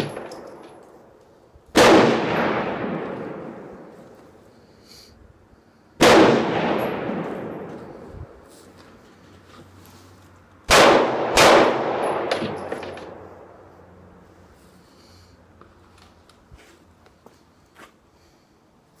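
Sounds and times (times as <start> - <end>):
gunshots with echo: 1.8 - 3.9, 6.0 - 8.0, 10.7 - 13.5.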